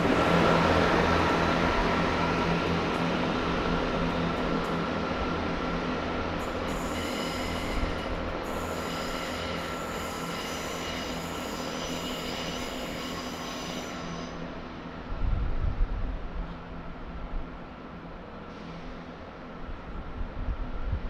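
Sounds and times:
diesel train engine hum: 0.0s - 21.0s
train wheel squeal: 6.4s - 14.6s.

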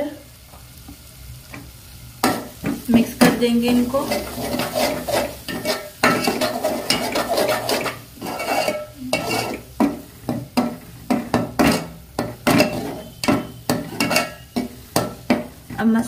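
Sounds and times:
paste sizzling in oil: 0.0s - 16.0s
metal spatula scraping a pot: 3.7s - 15.5s.

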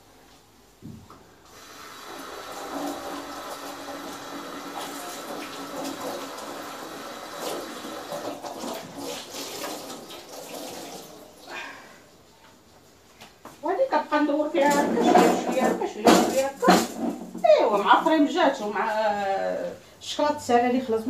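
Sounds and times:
tap running water: 0.8s - 11.6s, 14.6s - 17.5s.

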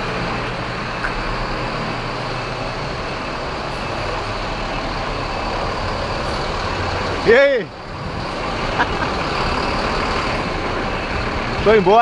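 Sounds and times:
diesel bus engines idling: 0.0s - 12.0s.

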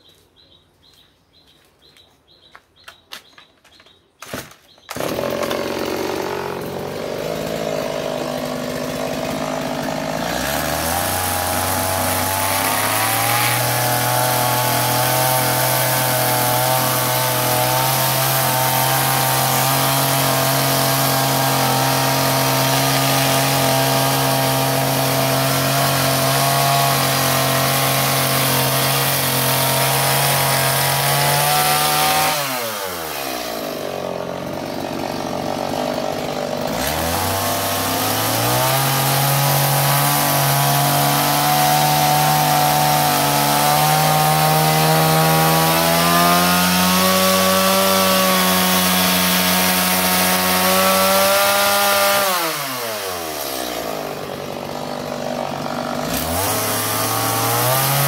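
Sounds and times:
birds chirping faintly: 0.0s - 5.0s
chainsaw running loudly: 4.9s - 58.0s.

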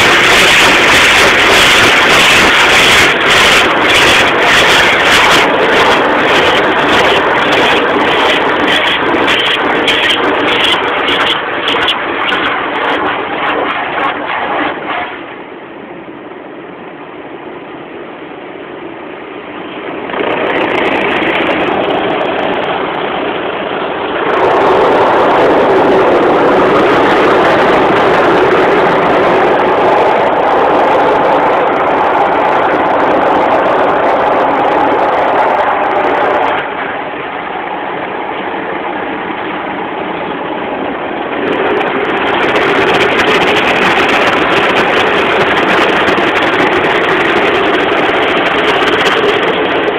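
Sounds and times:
spinning car wash brushes: 0.0s - 15.5s
water rushing over car: 0.0s - 16.4s, 19.4s - 49.9s.

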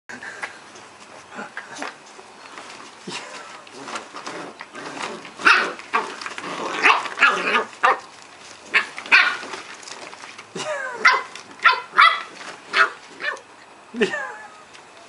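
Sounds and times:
puppies yapping: 4.9s - 8.1s, 8.7s - 9.8s, 10.6s - 13.5s.

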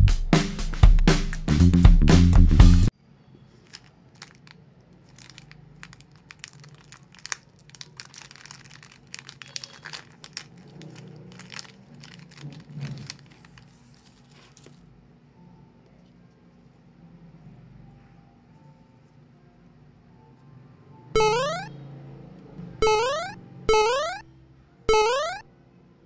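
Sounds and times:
plastic packet crinkling and tearing: 3.6s - 14.8s.

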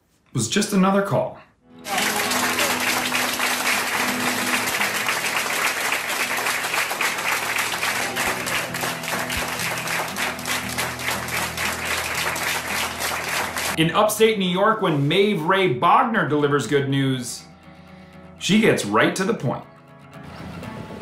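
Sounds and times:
soft music: 1.7s - 21.0s
group applauding: 1.8s - 13.8s.

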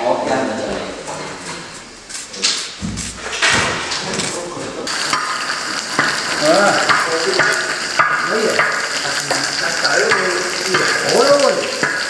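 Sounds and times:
food sizzling in hot oil: 4.9s - 12.0s.

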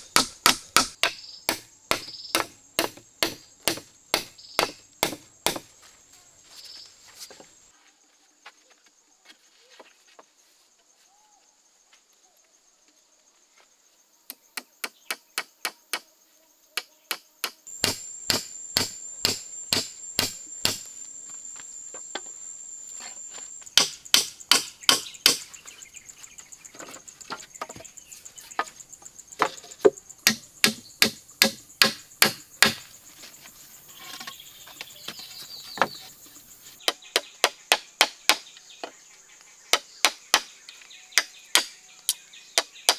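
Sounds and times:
insects droning: 0.0s - 42.9s
hammer driving nails into wood: 0.1s - 5.6s, 17.8s - 20.9s, 23.8s - 25.5s, 30.3s - 32.8s.

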